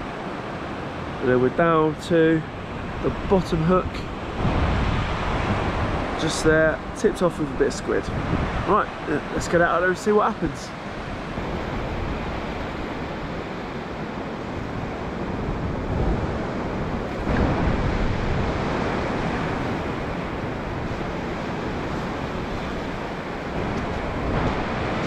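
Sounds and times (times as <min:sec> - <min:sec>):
wind buffeting microphone: 0:00.0 - 0:09.8, 0:10.4 - 0:25.0
waves washing onto sandy beach: 0:00.0 - 0:25.0.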